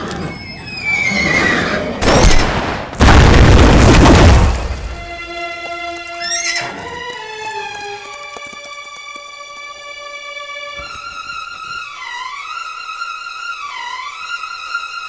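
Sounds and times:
horse whinnying: 0.0 - 2.0, 6.0 - 7.0
dramatic string score: 4.5 - 15.0.

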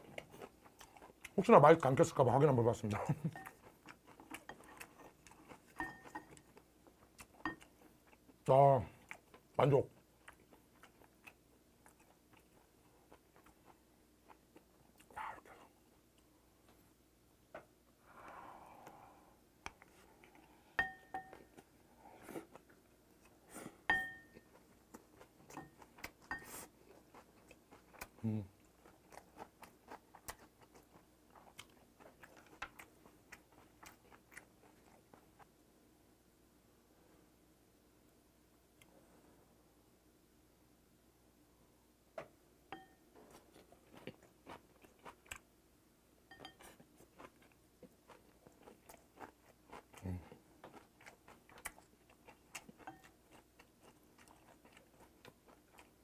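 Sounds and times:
close chewing: 0.0 - 16.3, 19.6 - 35.5, 43.2 - 45.5, 46.3 - 56.0
utensil clinking against plate: 5.8 - 6.3.

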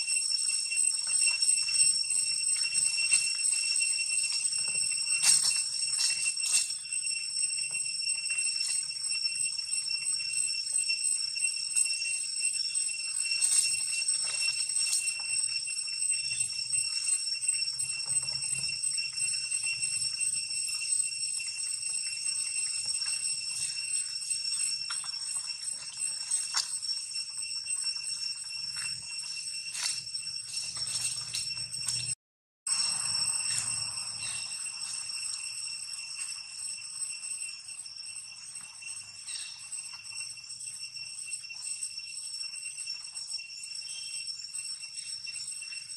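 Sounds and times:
high-pitched insect drone: 0.0 - 45.9.

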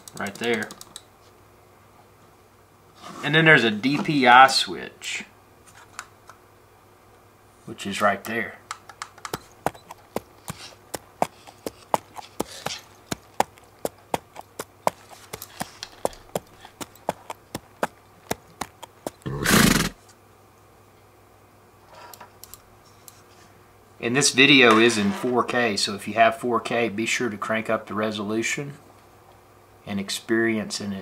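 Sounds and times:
mouse buttons clicking: 8.8 - 10.0.

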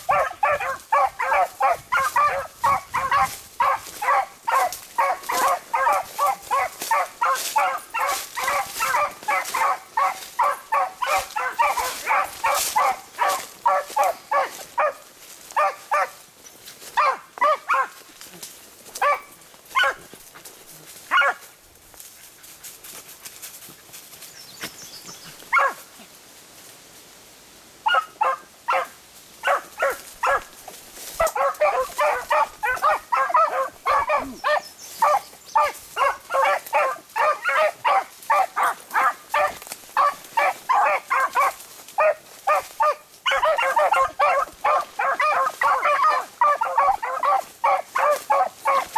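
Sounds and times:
hounds baying: 0.0 - 16.2, 16.8 - 18.0, 18.9 - 21.5, 25.2 - 25.8, 27.8 - 48.9.

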